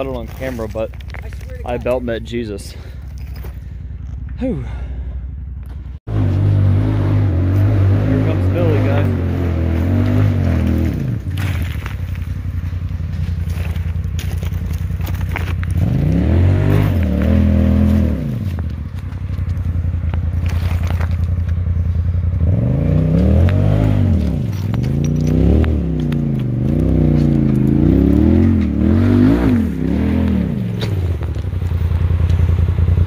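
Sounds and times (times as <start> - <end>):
rocks scraping under tires: 0.0 - 4.3, 8.3 - 22.1, 23.0 - 32.5
engine revving in bursts: 6.1 - 11.5, 15.7 - 18.5, 22.4 - 31.2.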